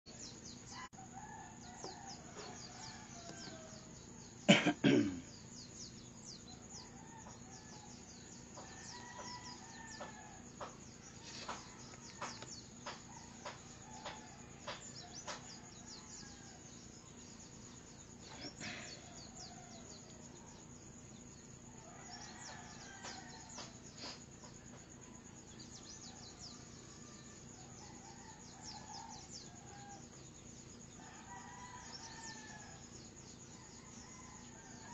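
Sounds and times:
roosters crowing faintly: 0.7s - 34.9s
person coughing: 4.5s - 5.3s.

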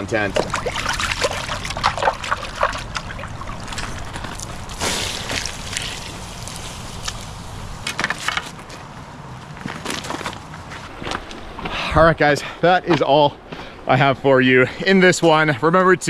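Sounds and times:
pot dipped in splashing water: 0.0s - 4.2s
creek rushing: 0.0s - 6.6s
water poured onto ashes: 0.3s - 7.3s.

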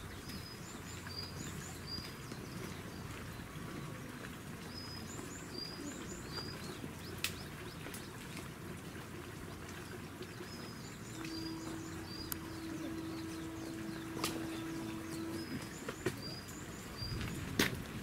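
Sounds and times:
steady low hum: 9.3s - 18.0s
bird chirping: 10.4s - 17.4s.

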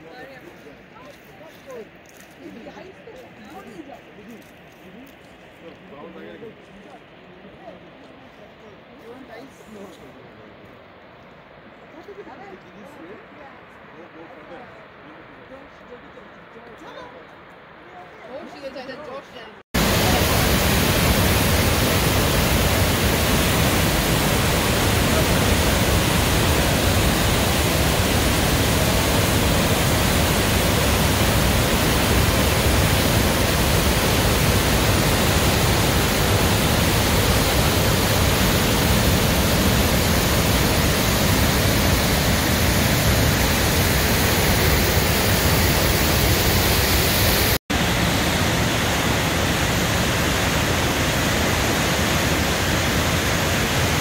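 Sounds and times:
fast-moving water rushing: 19.8s - 54.0s.

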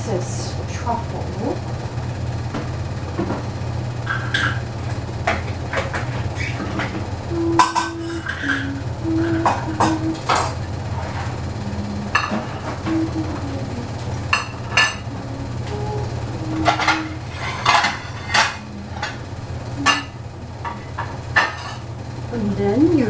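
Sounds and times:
steady low hum: 0.0s - 23.0s
utensils clicking on saucepan: 16.6s - 19.2s.

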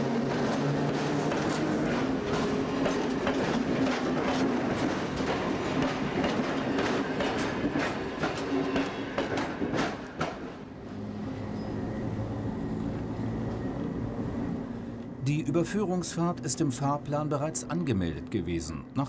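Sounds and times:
electric train hum: 0.0s - 19.0s
train wheels clacking over rail joints: 0.3s - 10.6s.

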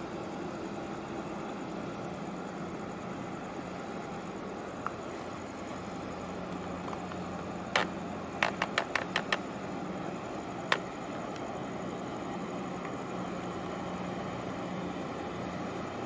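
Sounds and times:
ship machinery hum: 0.0s - 16.0s
sharp clicks: 7.7s - 9.4s.

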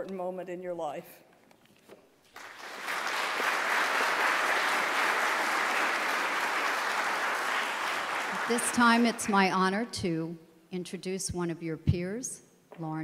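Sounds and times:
audience applauding: 2.3s - 9.5s.

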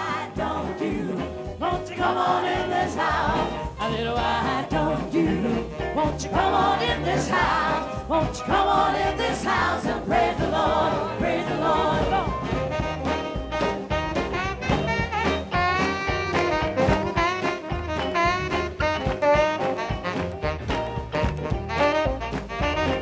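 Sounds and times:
choir singing: 0.0s - 12.6s
instrumental backing: 0.0s - 23.0s.

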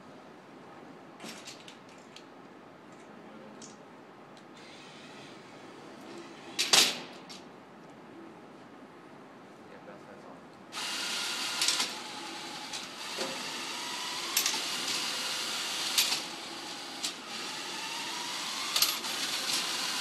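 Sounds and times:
electric motors whirring: 4.6s - 6.7s, 10.8s - 20.0s.

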